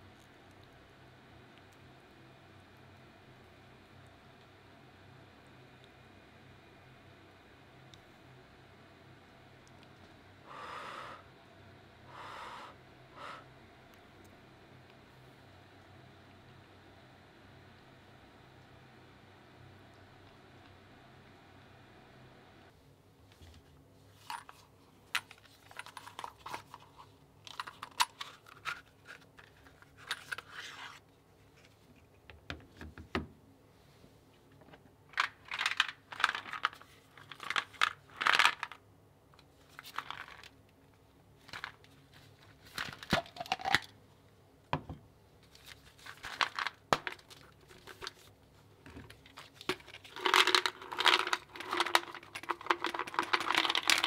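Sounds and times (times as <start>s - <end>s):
tablets poured into plastic case: 45.6s - 48.3s, 49.1s - 54.0s.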